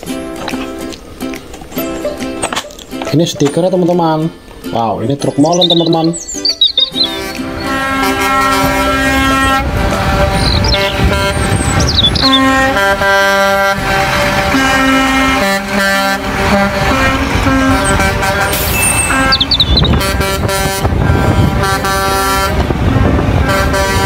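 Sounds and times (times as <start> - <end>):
horn-like held notes: 6.9 - 24.0.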